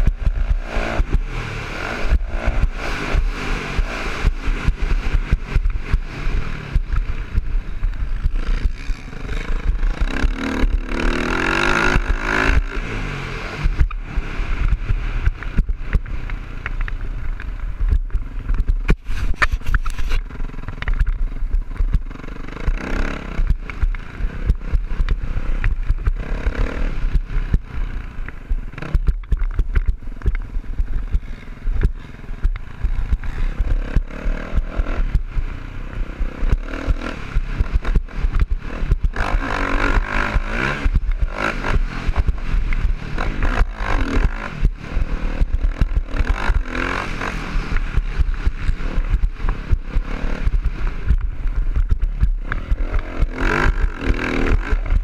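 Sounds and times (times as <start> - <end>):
dirt bike engine revving: 0.0 - 16.7, 17.7 - 55.0.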